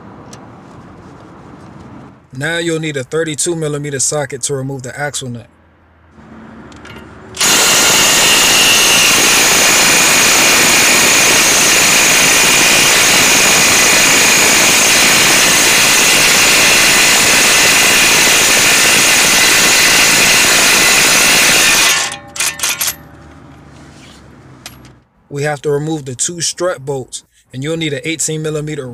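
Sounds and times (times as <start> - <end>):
impact wrench hammering: 6.7 - 23.2.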